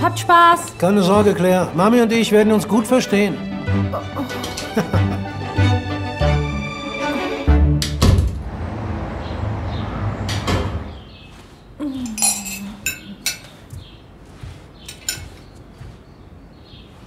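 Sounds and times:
dishes and cutlery clinking: 4.3 - 5.0, 12.0 - 13.7, 14.8 - 15.5.

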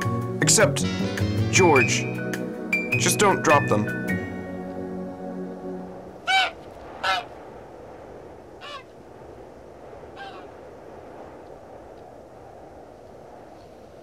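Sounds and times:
background hiss: 0.0 - 14.0
gull calling: 6.2 - 7.4, 8.6 - 9.0, 10.1 - 10.6.

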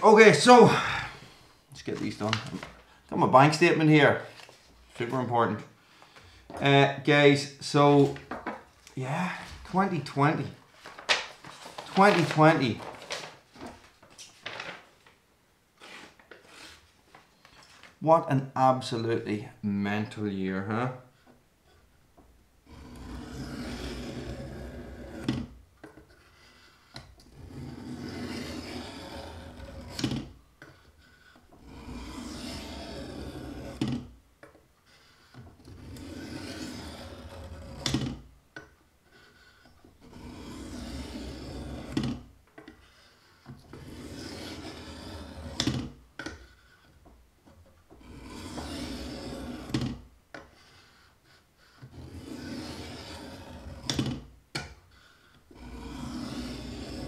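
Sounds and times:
knife rasping on sharpener: 30.7 - 33.8, 39.1 - 42.0, 43.8 - 45.6, 48.0 - 49.7, 50.6 - 53.9, 55.5 - 57.0.

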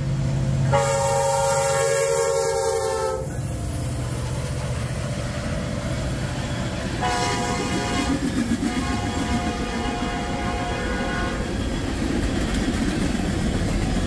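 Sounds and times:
freight train rumbling: 0.0 - 14.0
train air horn: 0.7 - 3.5, 7.0 - 11.5.

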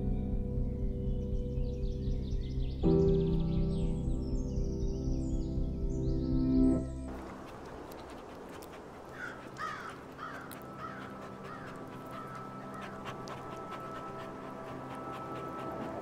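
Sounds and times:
dog panting: 7.1 - 16.0.

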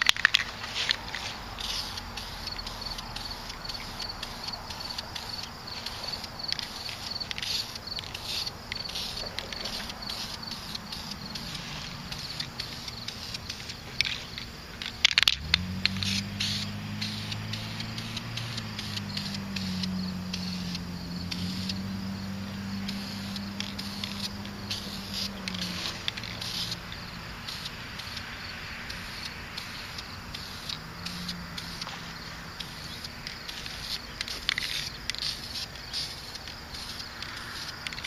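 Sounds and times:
spray paint can hissing: 0.0 - 38.0.

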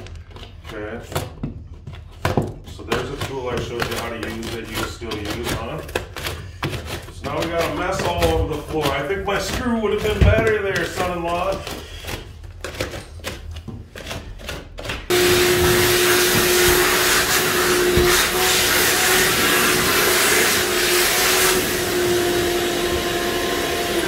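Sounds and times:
shop vacuum motor whine: 15.1 - 24.0.

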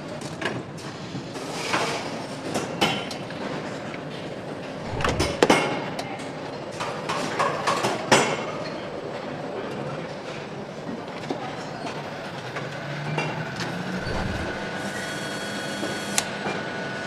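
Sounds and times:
assembly line machinery din: 4.8 - 5.7, 13.8 - 15.4.

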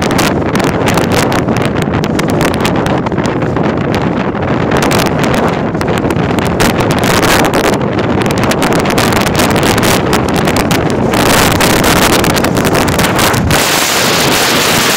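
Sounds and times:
wind buffeting microphone: 0.0 - 14.9
surf breaking on rocky shore: 4.3 - 14.9.

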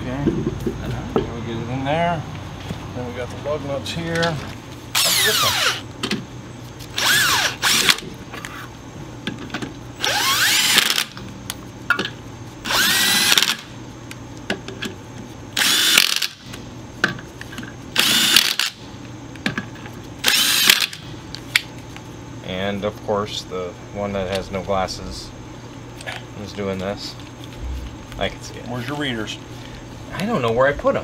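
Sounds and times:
impact driver spinning lug nuts: 5.0 - 5.9, 6.9 - 8.6, 10.0 - 11.2, 12.6 - 13.7, 15.6 - 16.5, 18.0 - 18.8, 20.2 - 21.0.

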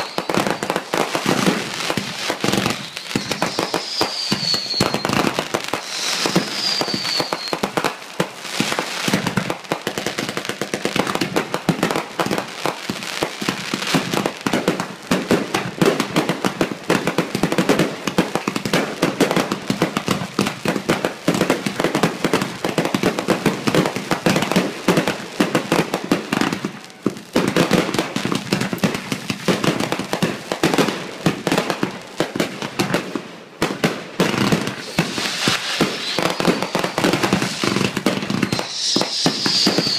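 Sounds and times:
falling firework whistle: 0.0 - 7.8, 34.4 - 39.9
fireworks bursting and crackling: 0.0 - 39.9.

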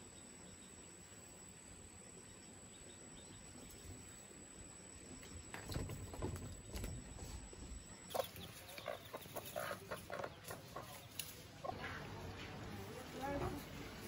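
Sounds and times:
chickens clucking: 5.8 - 14.0.

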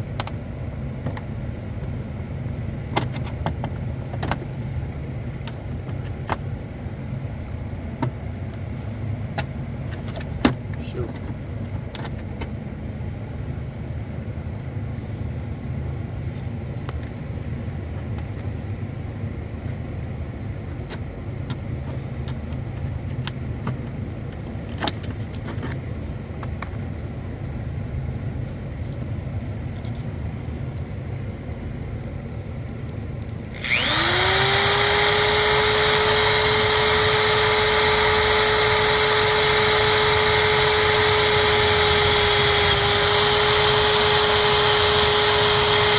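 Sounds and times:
steady low hum: 0.0 - 45.9
high-speed motor whining: 33.4 - 45.9.

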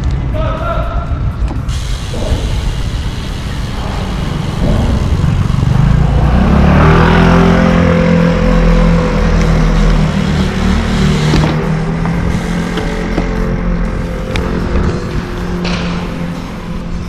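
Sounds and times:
vehicle engine: 1.2 - 17.0
wind rushing over microphone: 2.1 - 8.4, 13.8 - 17.0.

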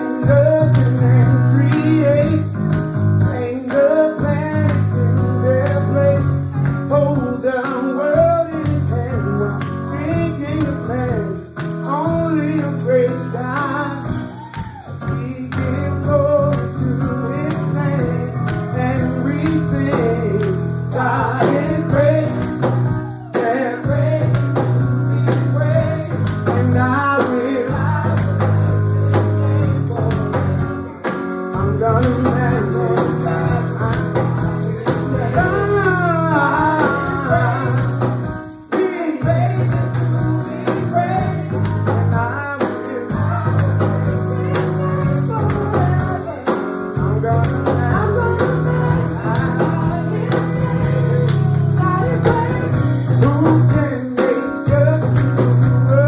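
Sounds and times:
voices singing gospel: 0.0 - 56.0
band with sustained bass: 31.6 - 38.3, 47.0 - 53.6.

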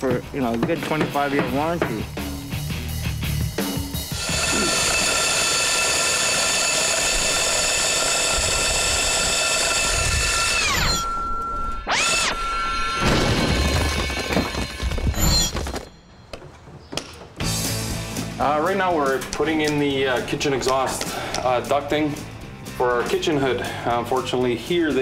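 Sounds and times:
core drill boring through brick: 4.1 - 15.6.

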